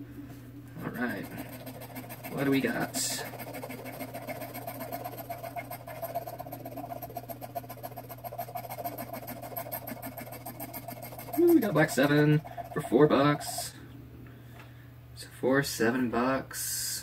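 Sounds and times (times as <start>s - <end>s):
scratching lottery ticket: 0.8s - 13.7s.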